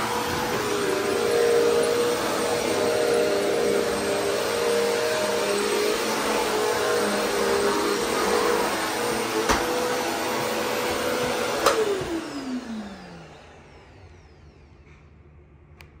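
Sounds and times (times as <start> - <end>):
vacuum cleaner running: 0.0 - 15.2.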